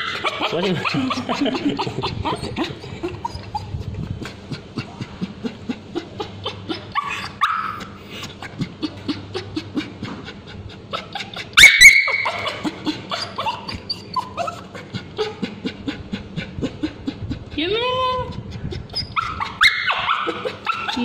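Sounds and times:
dog yelping: 0.0s - 3.8s, 6.0s - 8.0s, 10.9s - 16.0s, 18.3s - 21.0s
dog whining: 0.0s - 4.4s, 5.7s - 9.9s, 10.9s - 17.6s, 18.2s - 21.0s
dog whimpering: 0.0s - 21.0s.

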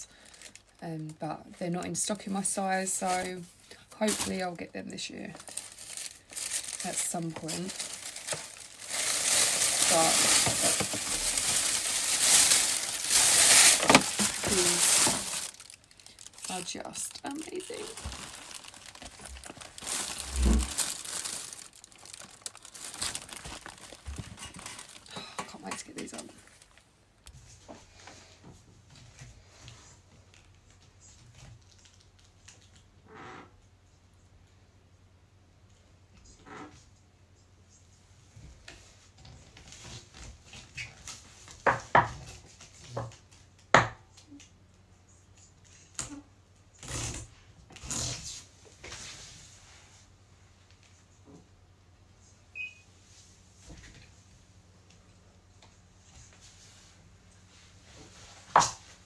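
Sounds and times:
boot crinkling and rustling: 5.4s - 26.8s.

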